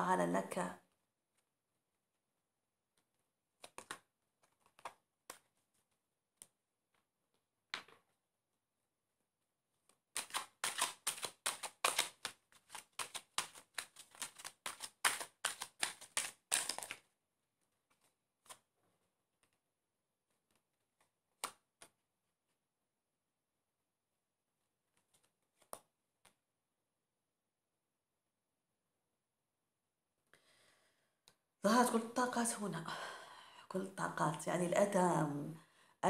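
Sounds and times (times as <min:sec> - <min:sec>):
cards being shuffled: 0:03.0 - 0:08.2, 0:09.7 - 0:19.6, 0:20.2 - 0:22.6, 0:24.8 - 0:26.4
rapid card clicks: 0:03.6 - 0:05.5, 0:10.1 - 0:17.0
card snaps: 0:10.2 - 0:17.0.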